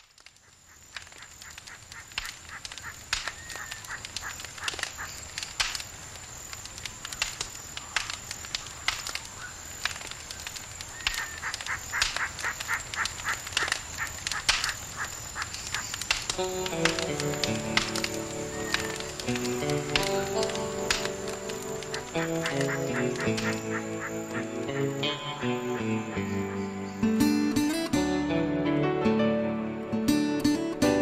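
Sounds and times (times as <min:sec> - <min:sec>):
birds calling: 0:00.4 - 0:05.3, 0:07.7 - 0:27.3.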